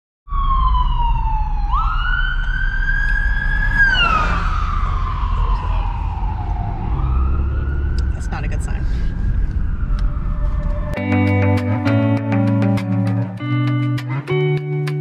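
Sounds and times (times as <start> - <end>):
siren wailing: 0.3 - 11.8.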